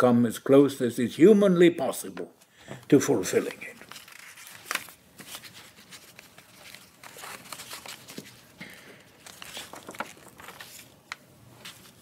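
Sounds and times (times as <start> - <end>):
paper rustling: 3.4 - 12.0.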